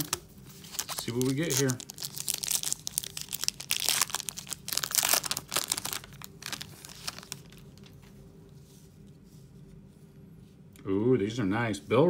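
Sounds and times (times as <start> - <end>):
foil wrapper tearing and crinkling: 0.6 - 8.0.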